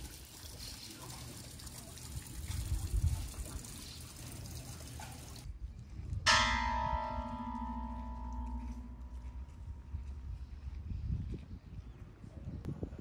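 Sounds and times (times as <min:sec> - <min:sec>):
bell ringing: 0:06.3 - 0:09.8.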